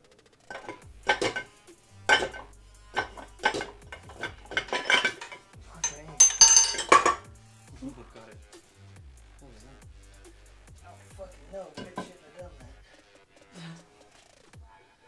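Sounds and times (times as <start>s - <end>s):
ringing metal clang: 0.5s - 1.5s, 2.1s - 7.3s
metal clanking and scraping: 0.5s - 7.3s, 11.7s - 12.2s.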